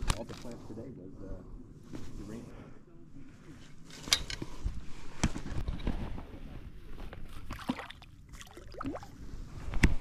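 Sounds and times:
lake water sloshing and splashing: 7.4 - 9.2.

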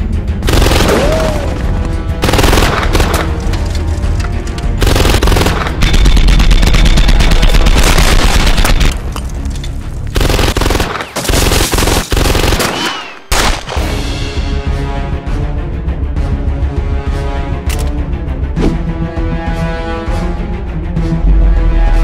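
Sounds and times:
automatic gunfire: 2.2 - 3.3, 4.8 - 8.9, 10.2 - 13.6.

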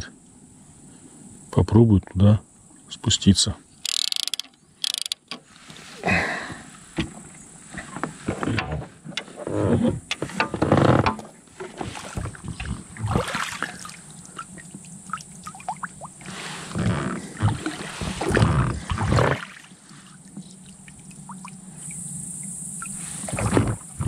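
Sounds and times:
fishing gear knocks and clunks: 3.8 - 5.4.

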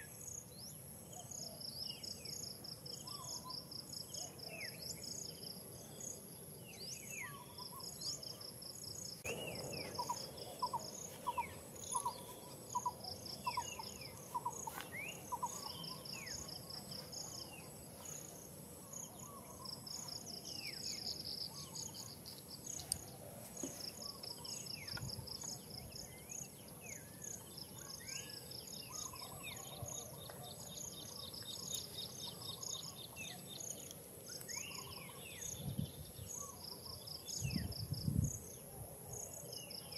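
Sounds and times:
insects shrilling and chirping: 6.8 - 29.8
birds calling: 9.2 - 33.4.

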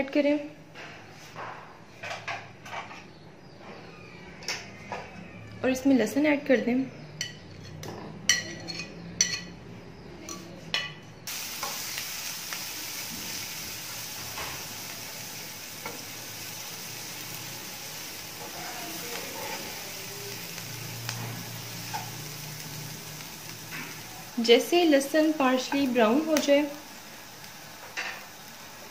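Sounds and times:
garlic sizzling in hot oil: 11.3 - 28.9.

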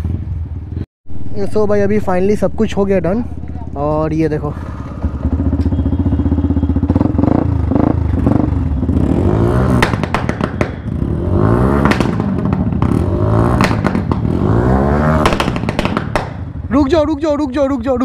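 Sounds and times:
motorcycle engine revving: 0.0 - 16.8
exhaust pops and bangs: 9.7 - 16.6.

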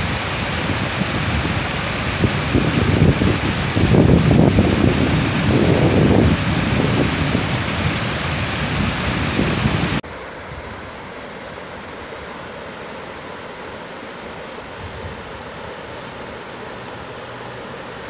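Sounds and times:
wind buffeting microphone: 0.0 - 10.0
water rushing through rapids: 0.0 - 18.0.

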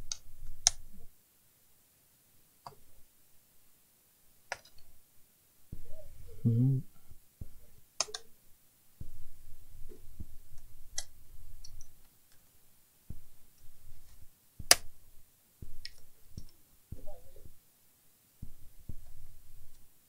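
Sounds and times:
plastic clicks: 8.0 - 8.3
hands rubbing on laptop: 13.1 - 15.0.

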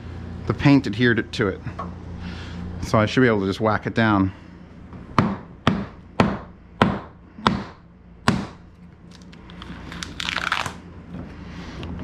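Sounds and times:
hammer striking wood: 5.2 - 8.6.

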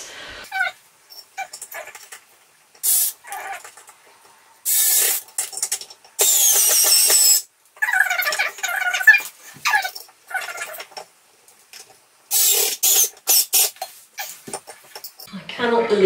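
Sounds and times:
cordless screwdriver driving screws: 6.2 - 7.4.

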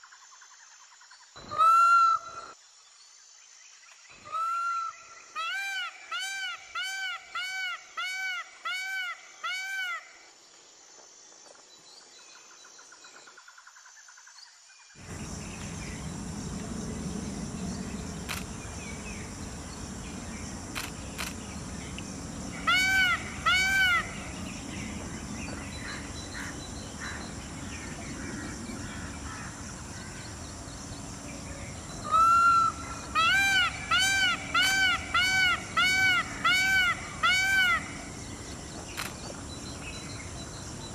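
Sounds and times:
outdoor background noise: 0.0 - 40.9
peafowl calling: 1.4 - 2.4, 15.0 - 29.9, 32.0 - 38.1.

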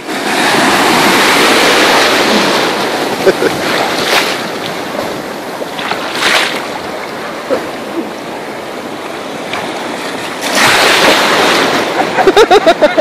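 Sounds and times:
rush of breaking water: 0.0 - 7.2, 9.4 - 12.6
small waves splashing in surf: 0.0 - 12.6.

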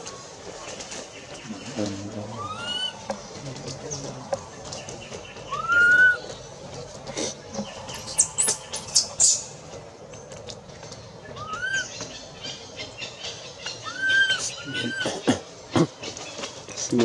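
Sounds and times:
rustling in dry leaves: 0.0 - 17.0
baby monkey whimpering coos: 13.9 - 15.2.

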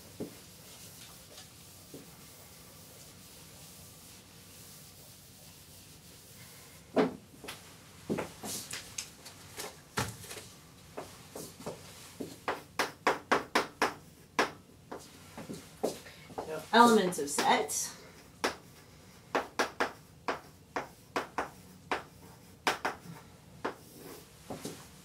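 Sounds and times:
footsteps on hard floor: 9.5 - 12.4
chalk tapping on blackboard: 11.0 - 17.6, 18.2 - 24.8.

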